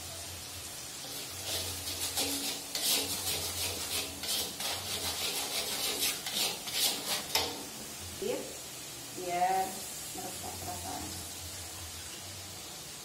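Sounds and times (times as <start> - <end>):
metal spatula scraping a wok: 1.0 - 7.8.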